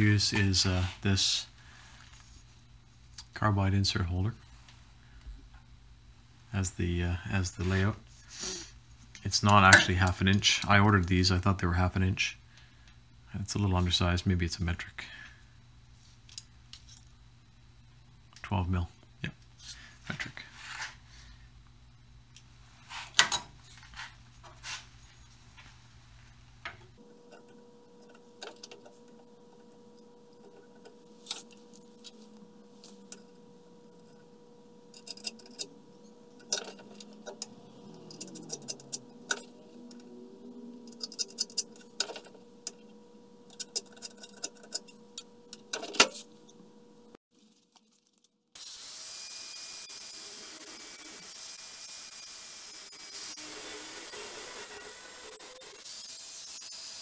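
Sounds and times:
angle grinder grinding steel: 27.1s - 46.4s, 48.6s - 57.0s.

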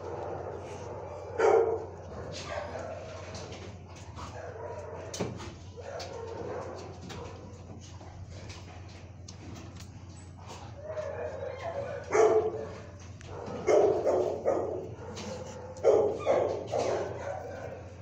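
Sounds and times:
dog barking: 0.0s - 3.5s, 4.2s - 7.6s, 10.7s - 18.0s
steady low hum: 0.0s - 18.0s.

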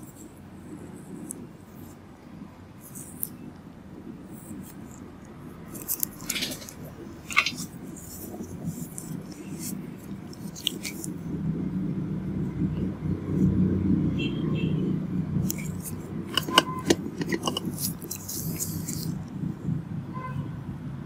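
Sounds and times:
low room murmur: 0.0s - 14.1s.

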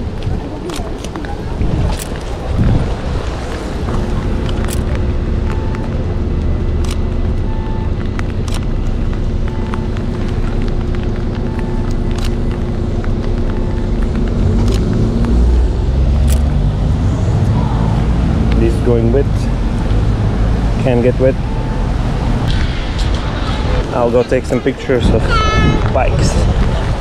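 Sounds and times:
traffic on wet roads: 0.0s - 27.0s
vehicle engine rumbling: 0.0s - 27.0s
sharp clicks: 4.4s - 15.4s, 16.2s - 16.6s.

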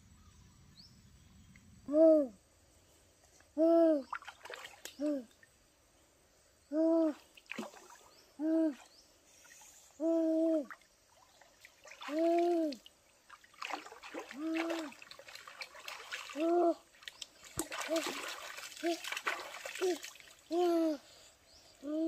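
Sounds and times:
foot splashing in stream: 11.1s - 20.5s.

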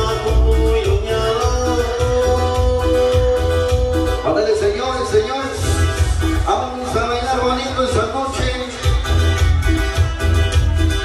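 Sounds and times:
dance music: 0.0s - 11.0s
pulsing bass beat: 0.0s - 11.0s.

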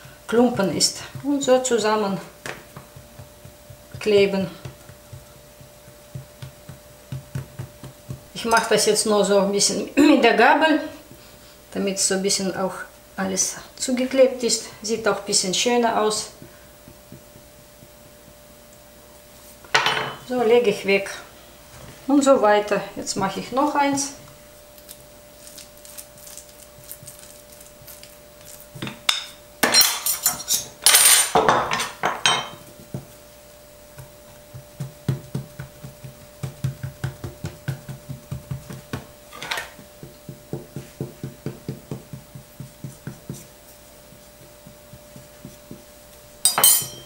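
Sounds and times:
fingers pressing dough: 0.0s - 8.4s, 16.1s - 18.5s, 33.9s - 46.3s
faint steady hum: 0.0s - 47.0s
metal spoon scraping and clinking: 29.2s - 31.3s, 46.5s - 47.0s.

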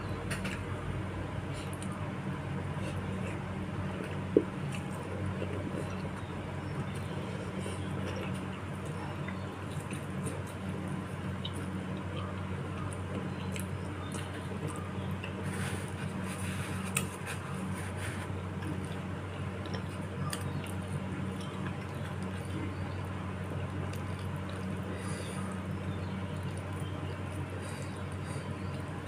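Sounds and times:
steady low hum: 0.0s - 29.0s
wet chewing mouth sounds: 1.4s - 29.0s.

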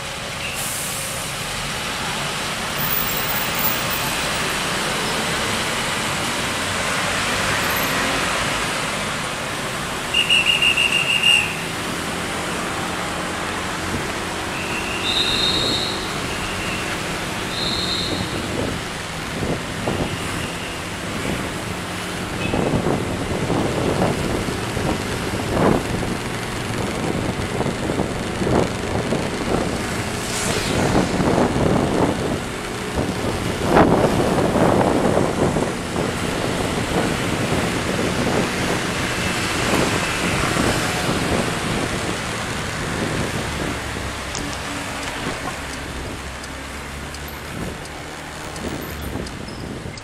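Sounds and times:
road and traffic noise: 0.0s - 50.0s
wind buffeting microphone: 21.0s - 50.0s.

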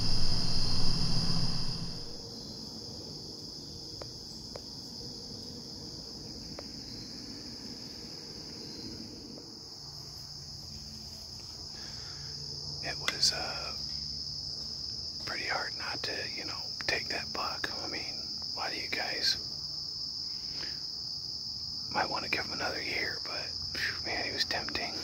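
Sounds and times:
low rumble: 0.0s - 2.2s
insects chirping: 0.0s - 25.0s
faint ticks: 24.5s - 24.9s.

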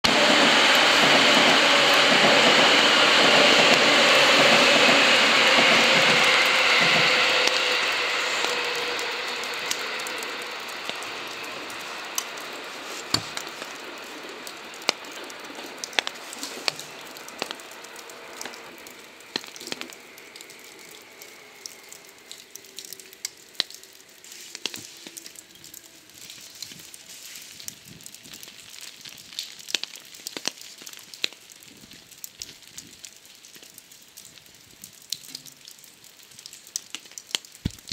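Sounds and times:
electric train passing: 0.0s - 24.3s
small ticks and crackles: 8.4s - 37.9s.

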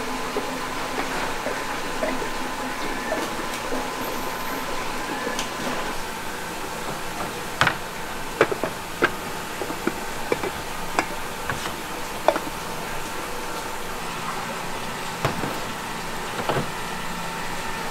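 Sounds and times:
factory hum: 0.0s - 17.9s
clay pots clinking together: 6.9s - 13.7s.

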